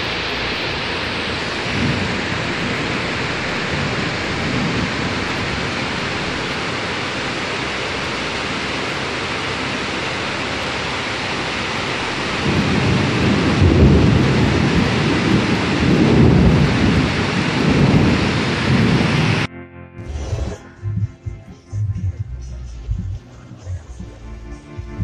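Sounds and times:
torrential rain: 0.0 - 19.5
deep rumble: 0.0 - 25.0.

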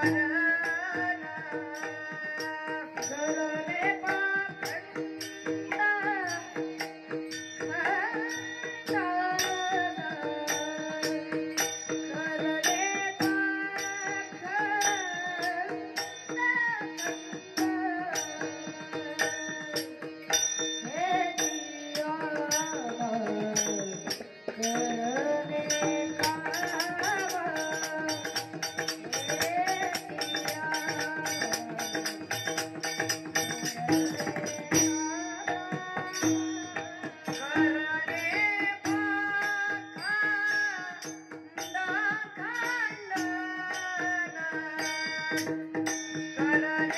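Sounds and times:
boy singing: 0.0 - 46.9
hand cymbals clashing: 11.5 - 46.9.

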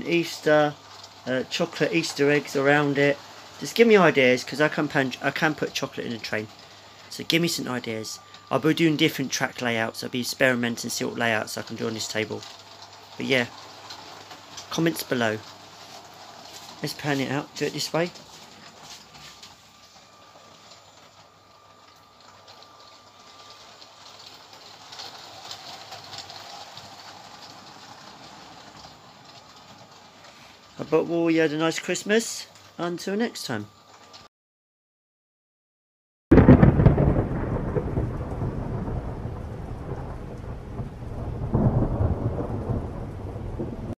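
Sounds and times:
rain hiss: 0.0 - 34.3, 36.4 - 43.9
toy train rattling on track: 0.3 - 6.7, 9.7 - 18.8, 21.9 - 32.7
thunder rumbling: 36.3 - 43.9.

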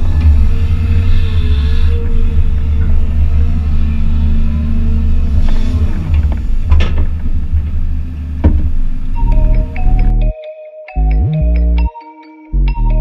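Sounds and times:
diesel engine droning: 0.0 - 10.4, 11.0 - 11.9, 12.6 - 13.0
sharp knocks: 8.4 - 8.9.

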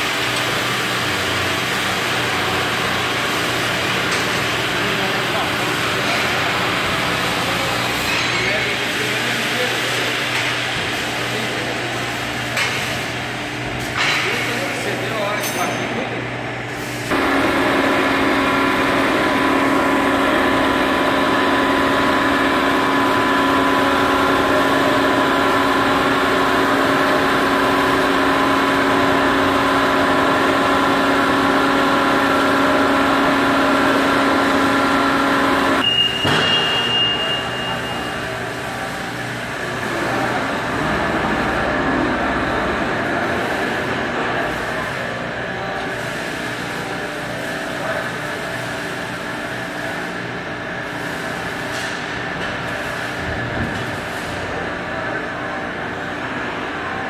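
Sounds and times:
hydraulic pump motor humming: 16.5 - 36.2, 36.8 - 45.9
brief high whine: 35.8 - 38.4.

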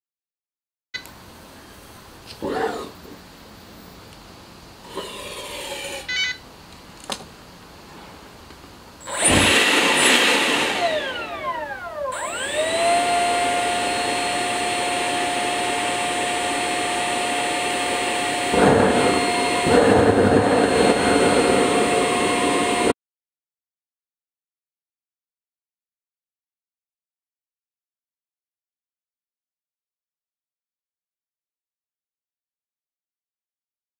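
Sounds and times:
electric ducted fan whining: 1.0 - 22.9
bursts of rushing noise: 18.4 - 22.9.

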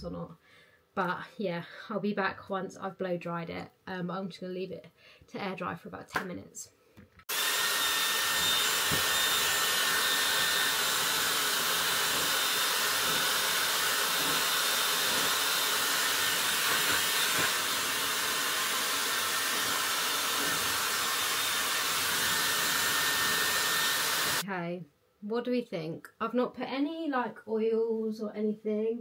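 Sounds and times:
hair dryer blowing: 7.3 - 24.4.

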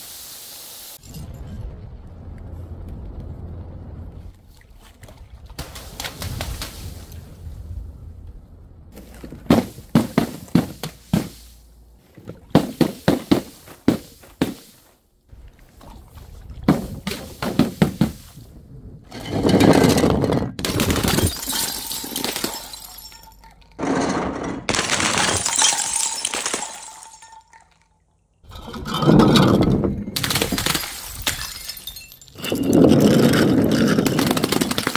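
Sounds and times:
glass bottles breaking: 19.1 - 34.9.

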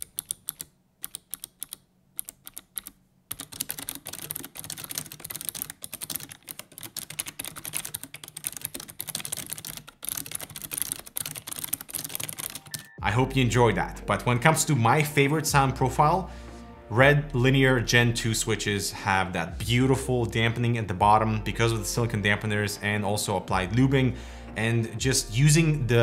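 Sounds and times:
clicky keyboard typing: 0.0 - 13.0.

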